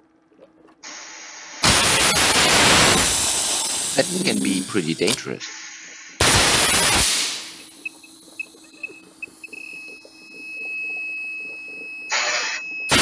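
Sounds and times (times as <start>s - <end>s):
gas detector alarm beeps: 7.7s - 13.0s.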